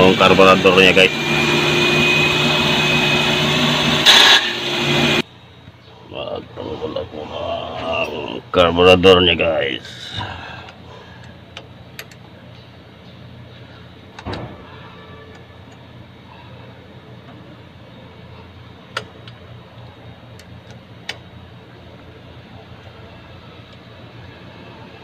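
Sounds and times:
steady low hum: 0:05.2 - 0:25.0.

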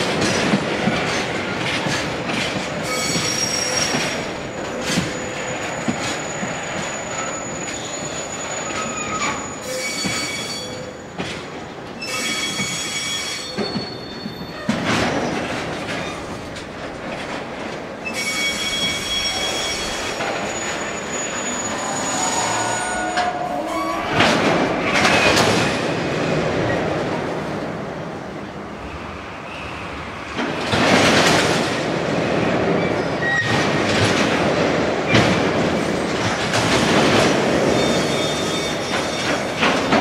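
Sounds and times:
train wagons rumbling: 0:00.0 - 0:40.0
steel wheels squealing: 0:02.8 - 0:11.2, 0:12.0 - 0:15.4, 0:18.0 - 0:24.2, 0:37.6 - 0:39.6.

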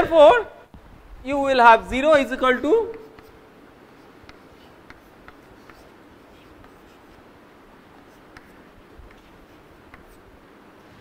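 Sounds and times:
low room hiss: 0:00.0 - 0:11.0
chalk tapping and scratching: 0:02.9 - 0:11.0.

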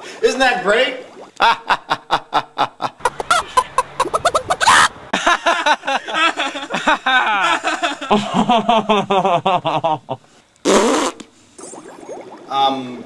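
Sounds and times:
people laughing: 0:01.4 - 0:10.2.

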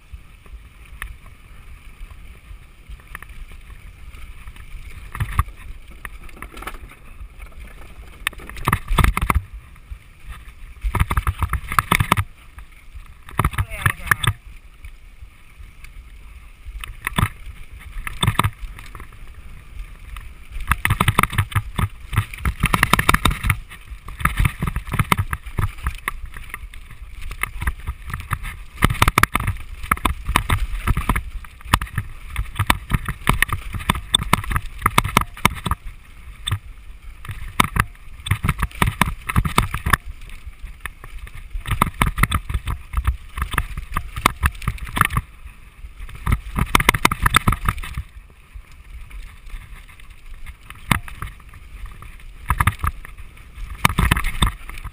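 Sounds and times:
tyres on dirt and stone: 0:00.0 - 0:54.9
bike chain and frame knocking: 0:13.2 - 0:14.4, 0:16.9 - 0:19.2, 0:20.6 - 0:36.6, 0:37.2 - 0:40.1, 0:46.1 - 0:48.1, 0:50.6 - 0:54.9.

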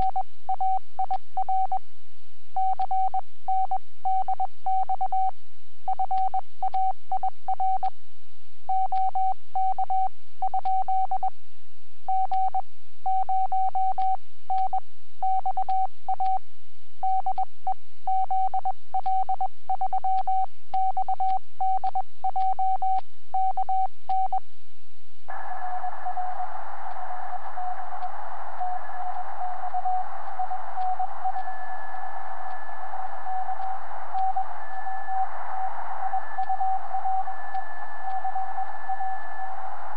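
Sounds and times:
faint steady tone: 0:00.0 - 0:39.9
morse code tone: 0:25.3 - 0:39.9
radio band hiss: 0:25.3 - 0:39.9.

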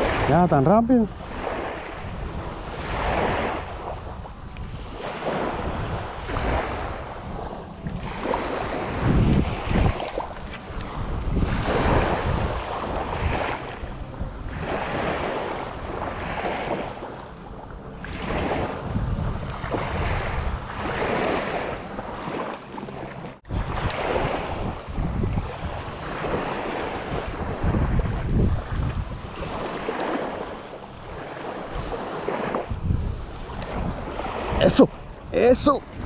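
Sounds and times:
small waves breaking on shore: 0:00.0 - 0:36.0
wind on microphone: 0:00.0 - 0:36.0.

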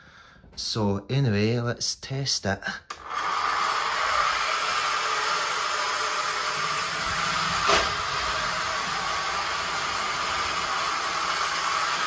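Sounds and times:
toy roller coaster car rattling: 0:06.6 - 0:12.0
sharp knock: 0:07.6 - 0:08.0.

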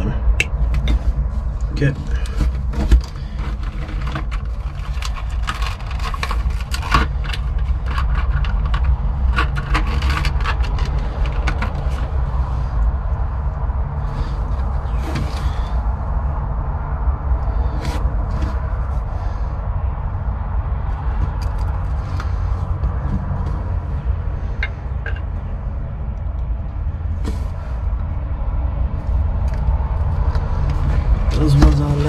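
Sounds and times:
low rumble: 0:00.0 - 0:32.0
tools clicking and scraping: 0:02.0 - 0:12.2, 0:21.2 - 0:23.6, 0:24.5 - 0:25.3.

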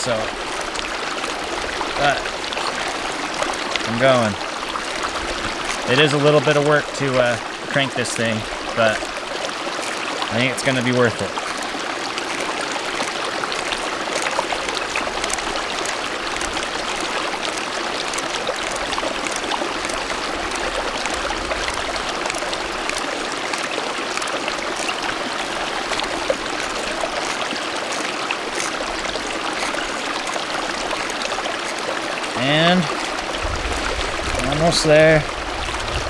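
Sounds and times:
stream running over rocks: 0:00.0 - 0:36.0
faint ticks: 0:09.7 - 0:25.2, 0:25.9 - 0:32.0.

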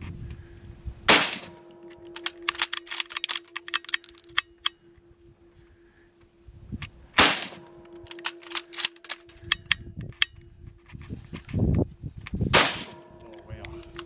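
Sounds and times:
rifle shots: 0:01.1 - 0:03.2, 0:07.2 - 0:09.0, 0:12.5 - 0:13.2.

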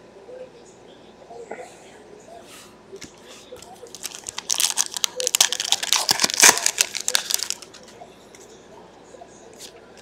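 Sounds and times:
foil wrapper tearing and crackling: 0:03.9 - 0:07.8.

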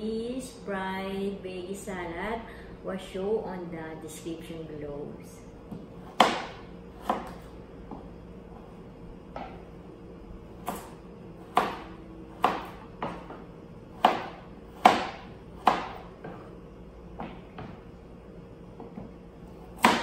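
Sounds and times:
knife chopping on cutting board: 0:05.7 - 0:08.0, 0:10.6 - 0:16.5, 0:17.2 - 0:17.8, 0:18.8 - 0:20.0.

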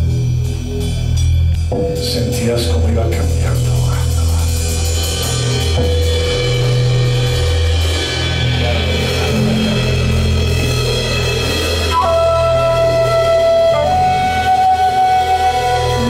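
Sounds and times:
bass line: 0:00.0 - 0:16.0
drum kit with cymbals: 0:00.0 - 0:16.0
flute holding a note: 0:11.9 - 0:16.0.

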